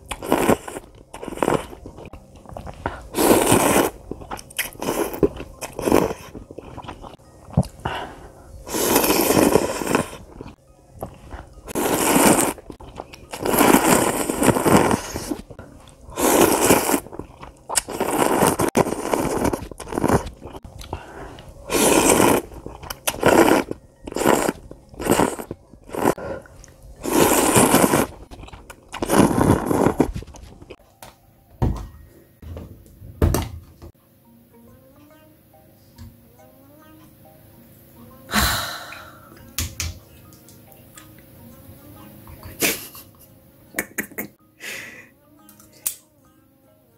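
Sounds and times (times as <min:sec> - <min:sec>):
person slurping noodles: 0:00.1 - 0:30.6.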